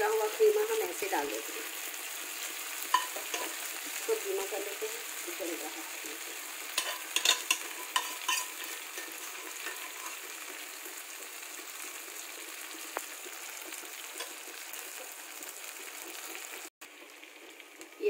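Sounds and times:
meat sizzling in oil: 0.0 - 18.0
spoon clicking against pan: 2.9 - 3.5, 6.8 - 10.2.

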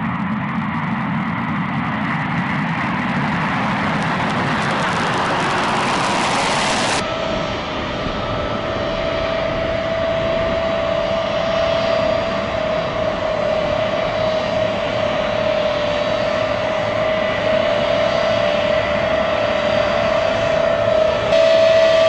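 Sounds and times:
aircraft engines running: 0.0 - 22.0
steady high whine: 0.0 - 22.0.

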